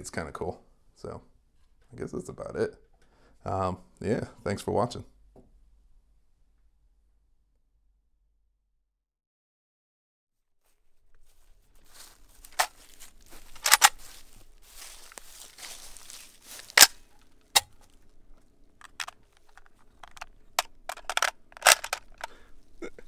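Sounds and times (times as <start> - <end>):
footsteps crunching dry grass: 10.6 - 22.8
magazine pulled from rifle: 13.4 - 14.2, 16.5 - 18.0, 18.8 - 22.4
rifle metallic clacks: 13.5 - 14.0, 16.7 - 17.8, 18.8 - 22.4.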